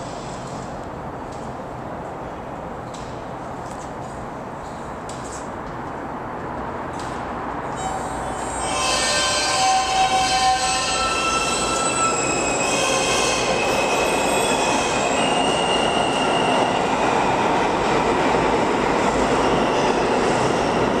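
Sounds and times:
train wheels on rails: 0:00.0 - 0:21.0
train wheels squealing: 0:07.7 - 0:17.2.

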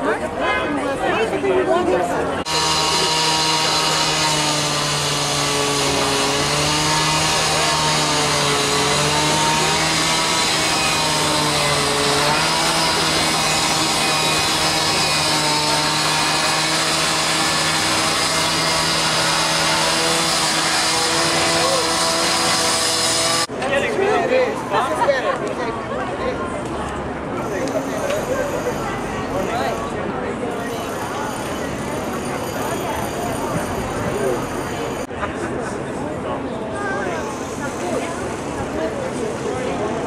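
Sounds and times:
low buzzing drone: 0:02.4 - 0:23.5.

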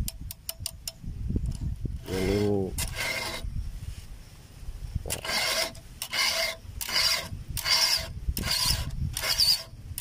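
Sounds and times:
file rasping on chainsaw chain: 0:02.0 - 0:03.5, 0:05.1 - 0:09.7.

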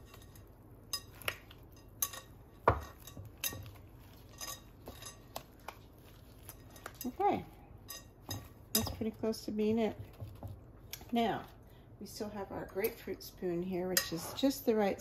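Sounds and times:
bowl and utensils clinking: 0:00.0 - 0:05.5, 0:06.3 - 0:09.2.

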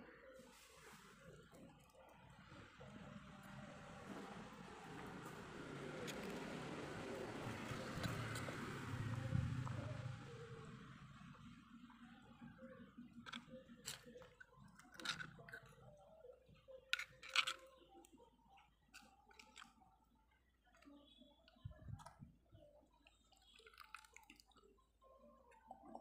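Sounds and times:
wet mixing: 0:16.9 - 0:26.0.

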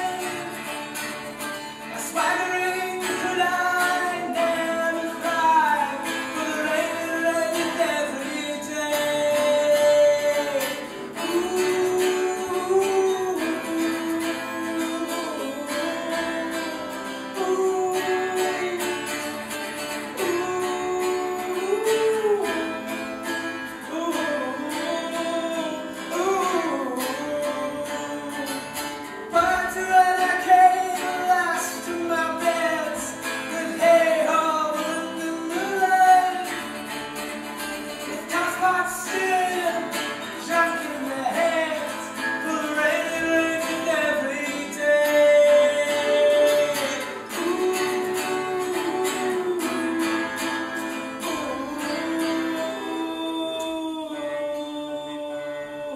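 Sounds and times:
acoustic guitar: 0:00.0 - 0:55.9
person singing: 0:00.0 - 0:55.9.

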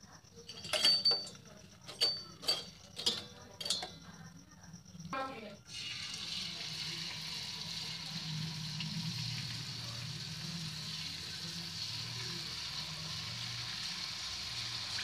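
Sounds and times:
batter sizzling in hot oil: 0:05.6 - 0:15.0.

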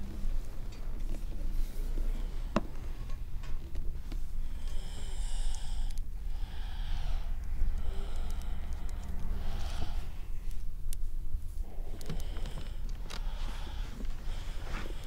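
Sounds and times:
steady low hum: 0:00.0 - 0:15.0
person breathing out through nose: 0:04.3 - 0:10.8, 0:11.6 - 0:15.0.

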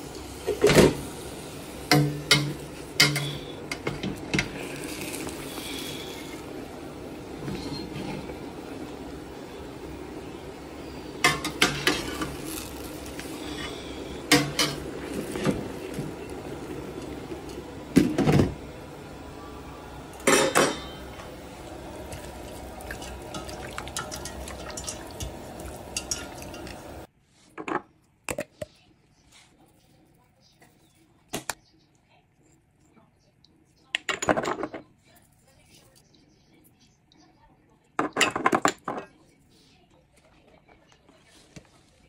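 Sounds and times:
metal pot and lid clanking: 0:01.9 - 0:04.6, 0:11.2 - 0:12.5, 0:13.4 - 0:15.6, 0:20.2 - 0:21.3, 0:22.1 - 0:27.0.

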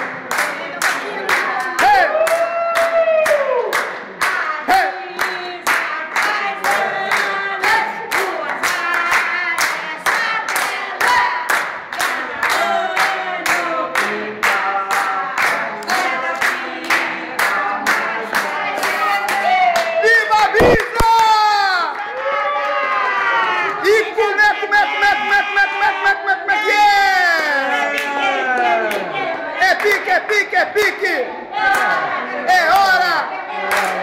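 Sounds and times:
people singing a birthday song: 0:00.0 - 0:02.2, 0:03.8 - 0:20.8, 0:23.8 - 0:34.0
hand-clapping: 0:00.3 - 0:20.0, 0:33.7 - 0:34.0.

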